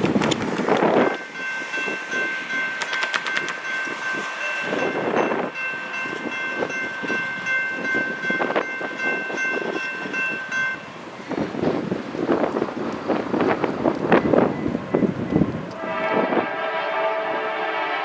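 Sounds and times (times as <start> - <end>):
crossing warning bell ringing: 1.0 - 11.4.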